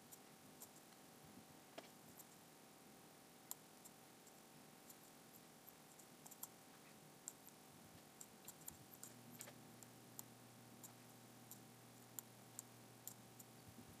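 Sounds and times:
low steady hum: 0.0 - 14.0
computer mouse clicks: 1.8 - 2.4, 3.5 - 6.6, 7.3 - 7.6, 8.2 - 13.5.

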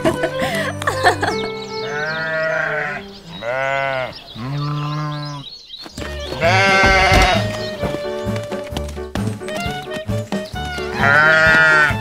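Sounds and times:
sheep bleating: 1.8 - 5.5, 6.2 - 7.9, 10.8 - 12.0.

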